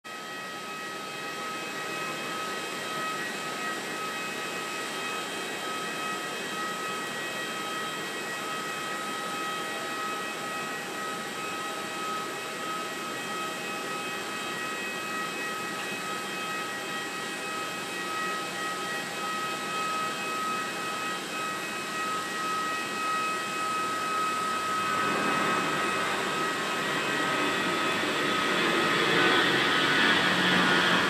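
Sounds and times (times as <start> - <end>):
jet engines at takeoff: 0.0 - 31.0
high whining tones: 19.2 - 31.0.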